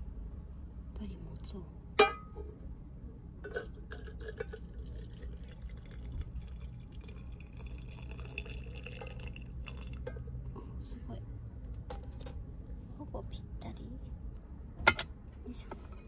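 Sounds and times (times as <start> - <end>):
water pouring into a flask: 3.9 - 10.1.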